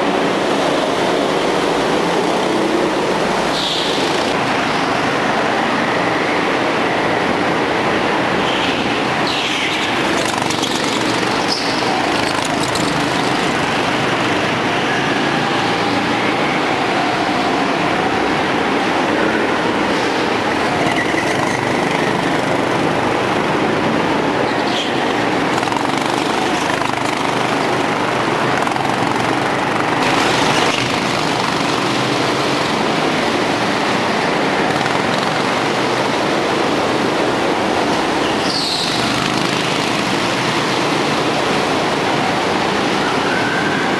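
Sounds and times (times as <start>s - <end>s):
go-kart engines: 0.0s - 43.9s.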